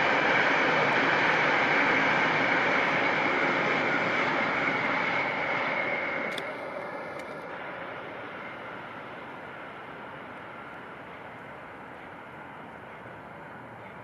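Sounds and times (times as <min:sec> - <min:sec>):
train wheels on rail: 0:00.0 - 0:14.0.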